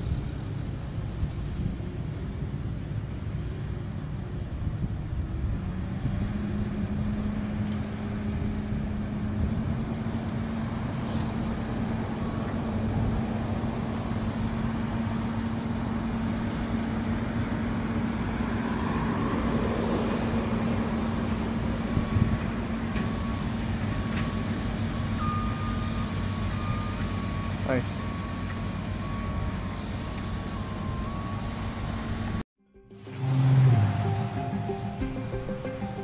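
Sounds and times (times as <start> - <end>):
excavator diesel engine rumble: 33.0 - 36.0.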